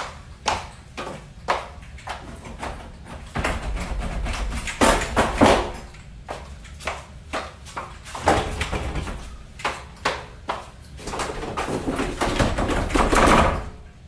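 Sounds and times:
high-heeled footsteps on wood: 0.0s - 2.8s, 4.8s - 13.0s
doors rattling: 11.0s - 13.9s.

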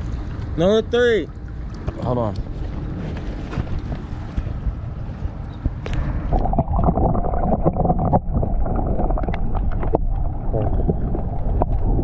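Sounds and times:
muffled underwater water noise: 0.0s - 12.0s
small clicks and knocks underwater: 7.6s - 12.0s.

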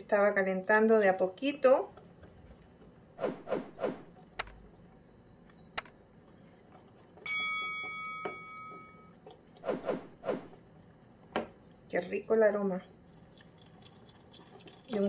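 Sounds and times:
whisk scraping ceramic bowl: 0.0s - 3.2s, 4.0s - 5.0s, 5.9s - 8.1s, 9.0s - 15.0s.

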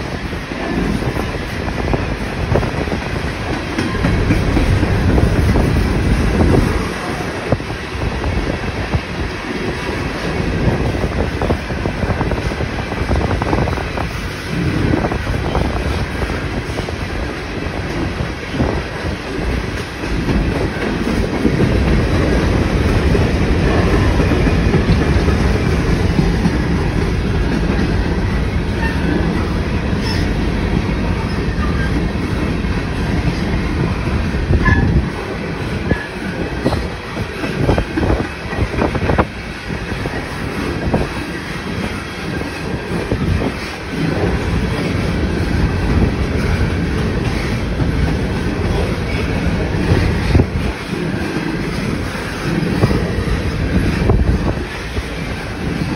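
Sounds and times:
train wheels rumbling on rail: 0.0s - 55.9s
wheels clacking over rail joints: 2.6s - 7.6s.

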